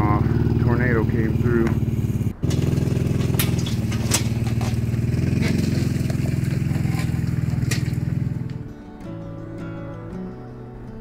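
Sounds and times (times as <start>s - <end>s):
engine running steadily: 0.0s - 8.8s
clicks and rattles: 2.4s - 8.6s.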